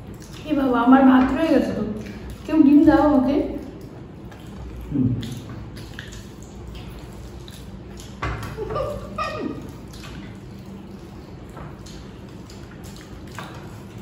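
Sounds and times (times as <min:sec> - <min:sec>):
mouth smacks: 0:04.3 - 0:10.8.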